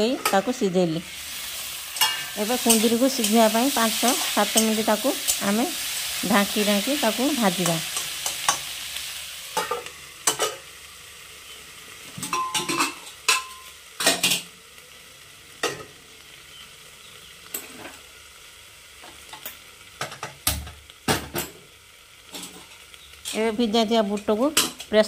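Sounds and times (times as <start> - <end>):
vegetables sizzling in a pan: 0.0 - 25.0
metal clanks of lid and spatula: 2.0 - 3.4, 9.6 - 10.6, 12.2 - 14.5, 22.3 - 23.4.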